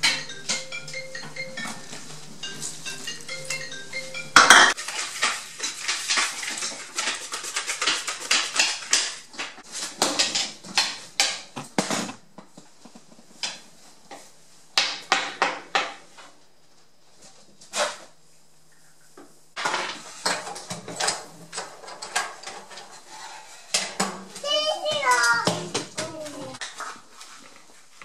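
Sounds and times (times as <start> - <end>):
soft music: 0.0 - 4.8
spoon stirring in plastic bowl: 4.4 - 9.9.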